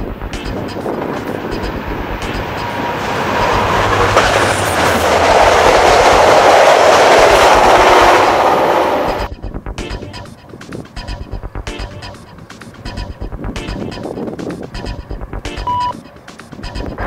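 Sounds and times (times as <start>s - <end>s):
train wheels on rails: 0.0s - 9.3s
diesel locomotive engine: 0.0s - 17.0s.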